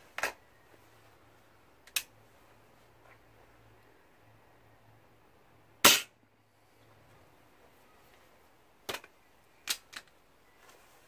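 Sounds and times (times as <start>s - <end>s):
air rifle shot crack: 5.8s - 6.1s.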